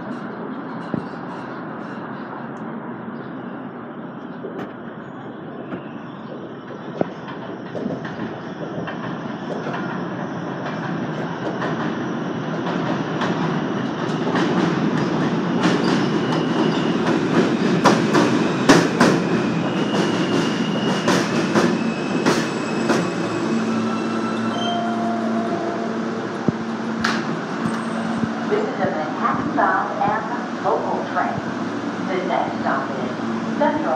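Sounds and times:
subway train arriving: 0:00.0 - 0:33.9
high wheel squeals: 0:19.5 - 0:26.8, 0:27.6 - 0:28.4.

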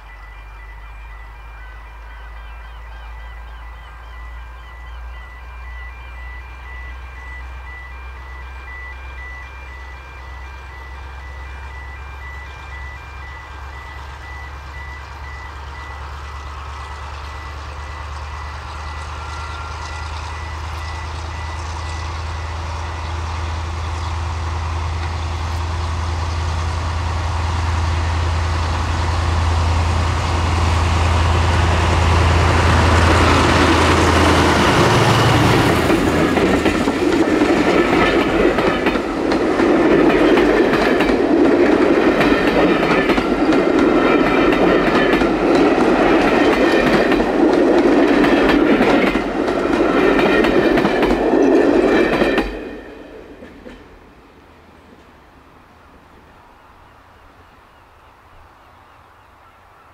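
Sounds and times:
diesel locomotive engine drone: 0:00.0 - 0:59.9
train wheels clickety-clack on rails: 0:09.1 - 0:54.2.

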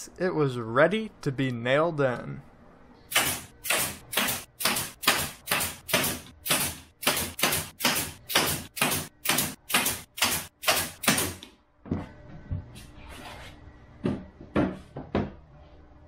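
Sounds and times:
nail gun firing: 0:03.1 - 0:11.4.

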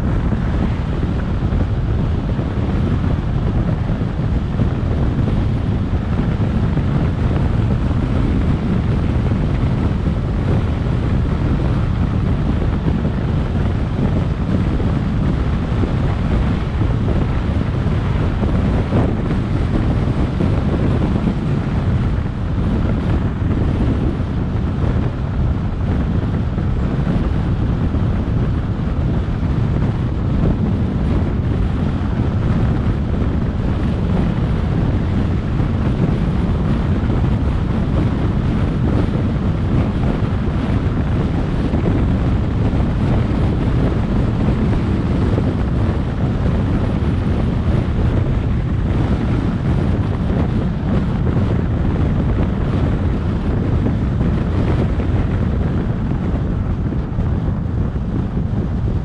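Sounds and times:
car tyre and road noise: 0:00.0 - 0:59.0
wind rush on microphone: 0:00.0 - 0:59.0.

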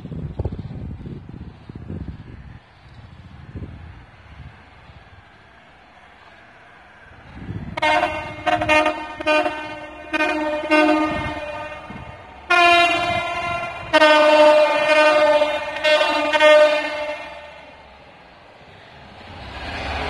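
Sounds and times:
two-tone locomotive horn blasts: 0:07.7 - 0:17.8.

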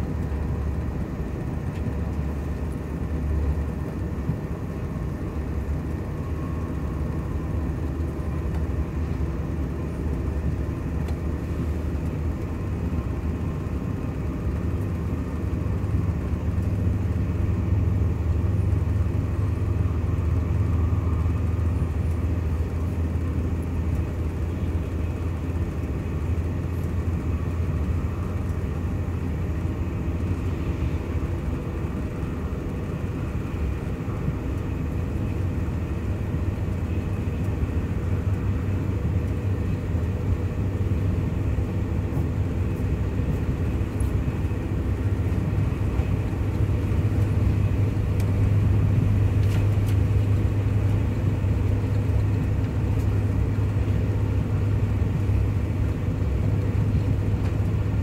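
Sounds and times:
train interior running rumble: 0:00.0 - 0:58.0.

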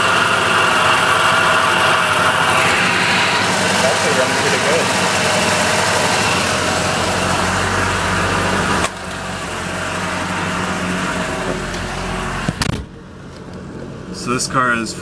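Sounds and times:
car engine fast idle: 0:00.0 - 0:08.2.

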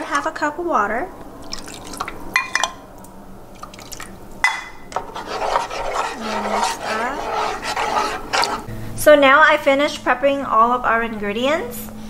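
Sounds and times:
water pouring into sauce: 0:01.4 - 0:02.2, 0:03.5 - 0:04.1
spoon stirring and scraping: 0:04.6 - 0:08.7.

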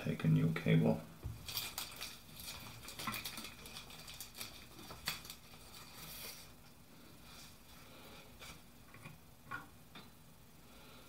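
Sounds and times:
wire being handled: 0:01.2 - 0:06.7.

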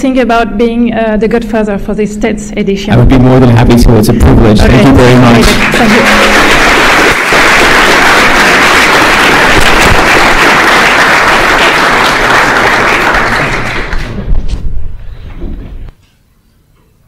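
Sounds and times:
audience applauding: 0:04.7 - 0:14.3.

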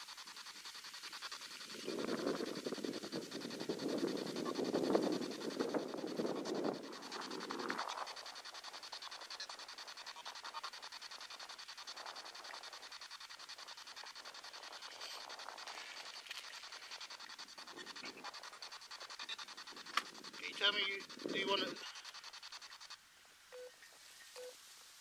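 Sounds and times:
chopped radio static: 0:13.9 - 0:23.0.

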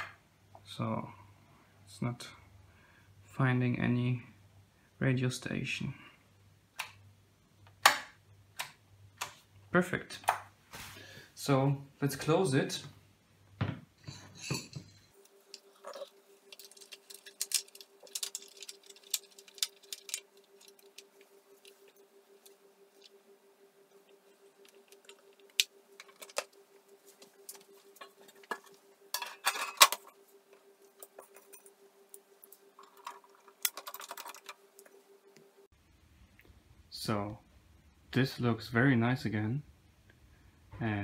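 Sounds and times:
faint steady hum: 0:00.0 - 0:41.0
metallic clicks and clatter: 0:15.5 - 0:22.0, 0:32.4 - 0:35.0.

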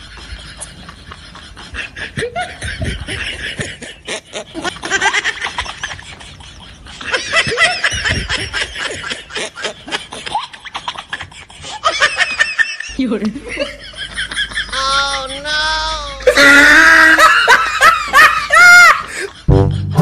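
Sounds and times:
high-pitched snickering laughter: 0:00.0 - 0:12.9.

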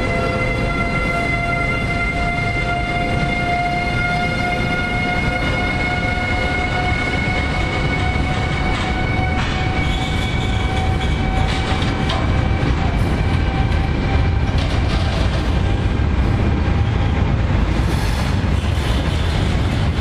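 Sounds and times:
electric freight train rumbling: 0:00.0 - 0:20.0
locomotive high whine: 0:00.0 - 0:20.0
wheel clacks over rail joints: 0:10.6 - 0:15.8.

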